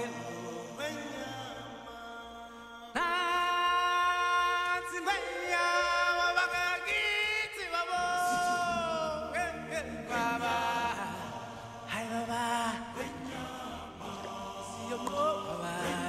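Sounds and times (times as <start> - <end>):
person singing chant-like notes: 0.0 - 16.0.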